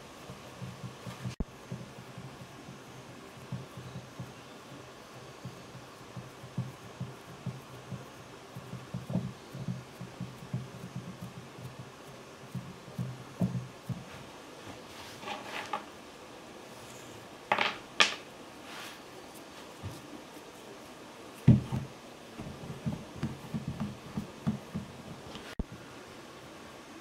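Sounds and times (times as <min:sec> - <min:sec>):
soft thuds of clay rolling: 0:00.2 - 0:14.9, 0:19.4 - 0:20.1, 0:21.4 - 0:25.7.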